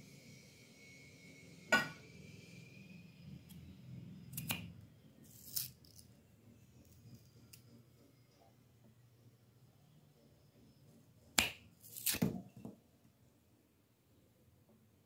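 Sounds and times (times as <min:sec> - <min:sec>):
knife slicing: 0:05.3 - 0:06.0, 0:11.4 - 0:12.4.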